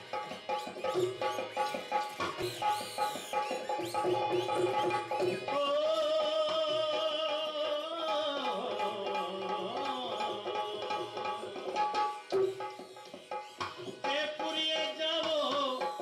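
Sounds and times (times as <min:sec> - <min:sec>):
hand drum strokes: 0:00.0 - 0:06.7, 0:08.5 - 0:16.0
harmonium: 0:00.0 - 0:16.0.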